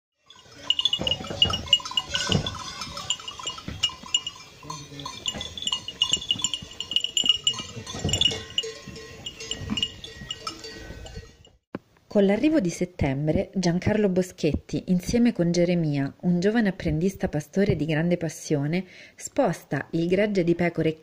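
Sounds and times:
livestock bells clinking: 0.2 - 11.6.

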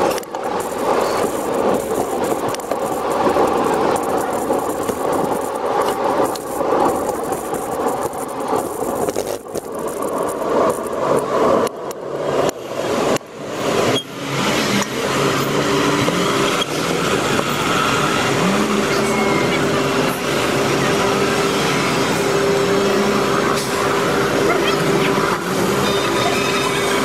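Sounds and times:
traffic and road noise: 0.0 - 27.0.

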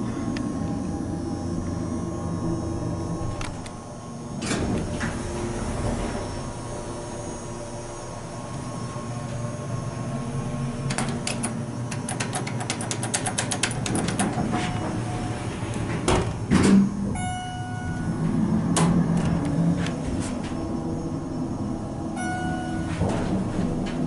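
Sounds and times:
hydraulic pump hum: 0.0 - 24.0
elevator clicks and rattles: 4.4 - 6.6, 10.8 - 21.0, 22.2 - 24.0
sliding doors shutting with a thud: 4.4 - 7.2, 10.7 - 17.2, 18.3 - 20.8, 22.7 - 24.0
short electronic tone: 17.2 - 18.2, 22.1 - 23.2.

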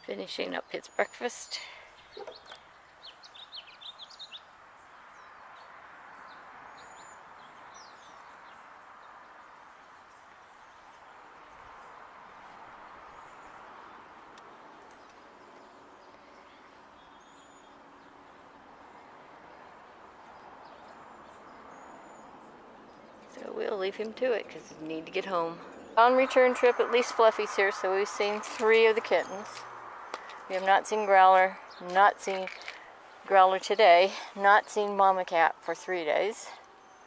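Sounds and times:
outdoor background noise: 0.0 - 37.0
small birds chirping: 0.0 - 37.0.

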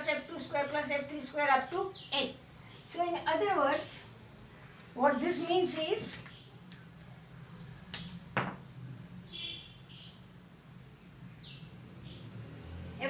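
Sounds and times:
marker taps on whiteboard: 8.4 - 8.6.

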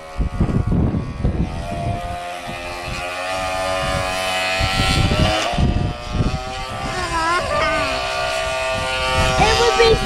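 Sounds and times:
model boat motor whining: 0.0 - 10.0.

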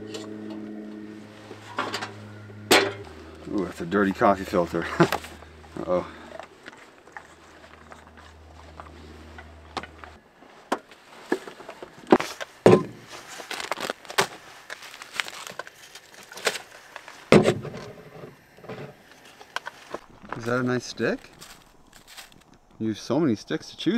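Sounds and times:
faint low hum: 0.0 - 23.9
packaging crinkling: 11.3 - 17.3, 19.3 - 22.8.

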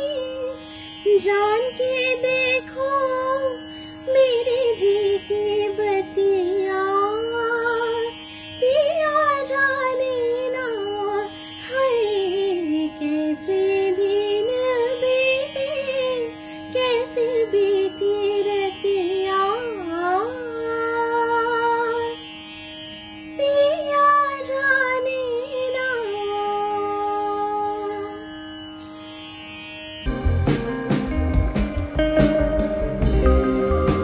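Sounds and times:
woman singing: 0.0 - 22.2, 23.4 - 28.2
steady drone tone: 29.6 - 34.0.

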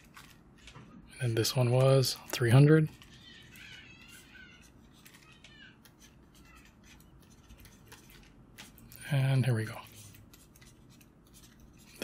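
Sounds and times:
stylus scratching on tablet screen: 2.9 - 8.3, 9.7 - 12.0.

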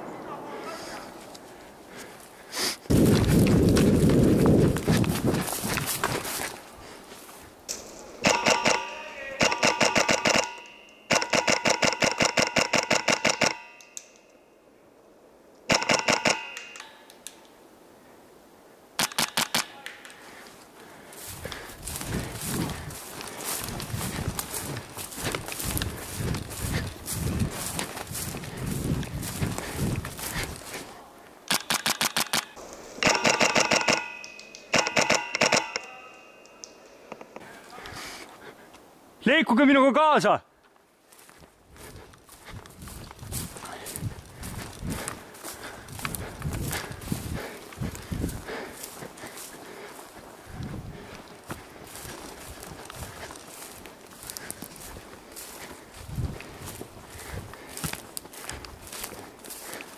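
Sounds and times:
ringing note: 8.2 - 11.2
airsoft rifle firing bursts: 8.3 - 13.7, 15.7 - 16.8, 31.5 - 35.8.

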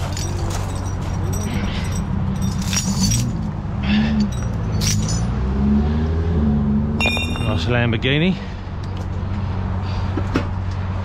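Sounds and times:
chains clinking and jangling: 0.0 - 5.5, 7.0 - 7.7.

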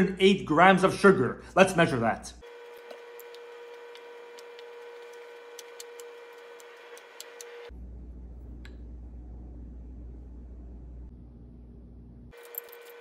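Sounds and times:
faint hum: 3.4 - 13.0.

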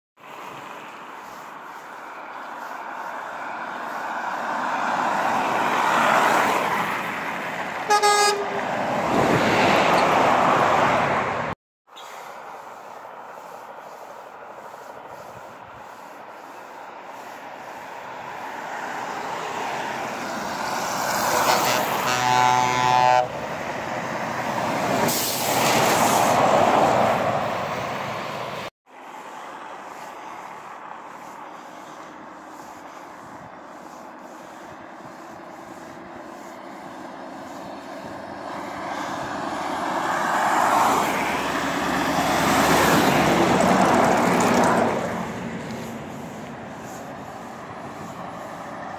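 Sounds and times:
trucks driving past: 0.2 - 48.9
deep air horn blast: 7.8 - 8.7, 21.3 - 23.4
short high horn blast: 7.9 - 8.7, 21.3 - 23.4.

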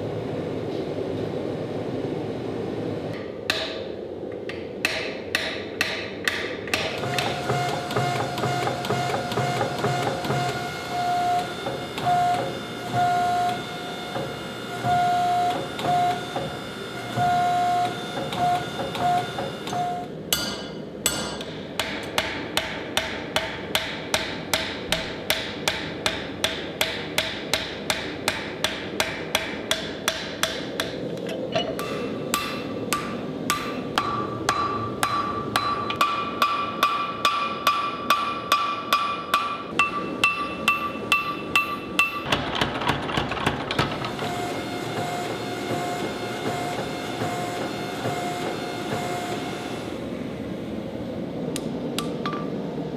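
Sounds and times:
hammer striking hot steel: 20.3 - 31.0, 31.6 - 42.3
steady ringing tone: 39.8 - 42.3.

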